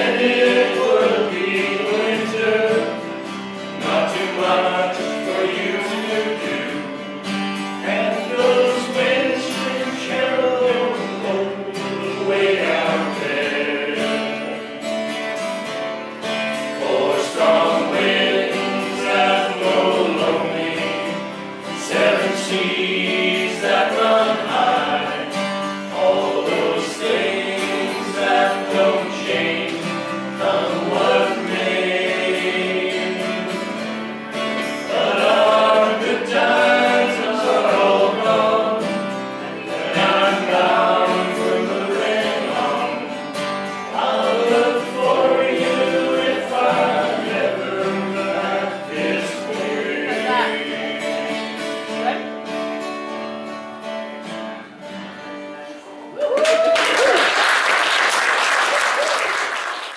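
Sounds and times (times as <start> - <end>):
men singing together: 0.0 - 14.8, 16.6 - 51.8
strummed acoustic guitars: 0.0 - 56.2.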